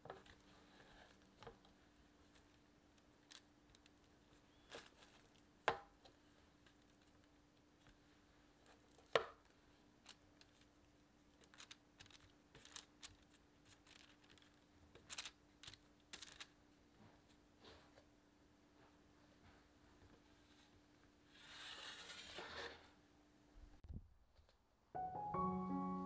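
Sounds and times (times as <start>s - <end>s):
faint steady hum: 0.0s - 26.0s
parchment rustling and tapping: 11.4s - 16.6s.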